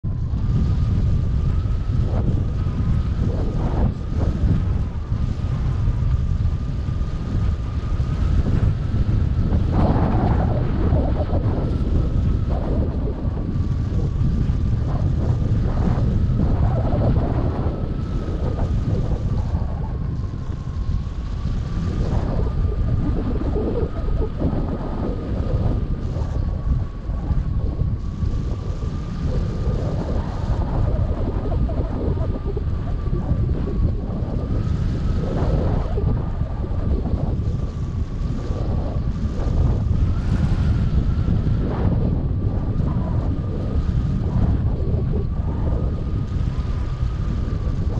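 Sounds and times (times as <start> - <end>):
wind buffeting microphone: 0.0 - 47.9.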